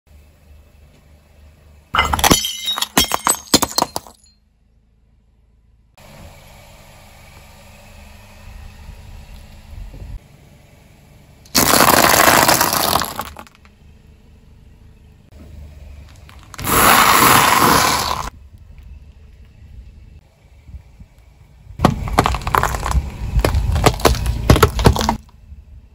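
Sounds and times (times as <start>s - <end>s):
low tyre rumble: 0.1s - 25.9s
ceramic plates shattering: 2.0s - 4.3s
dry pasta crunching: 11.6s - 13.5s.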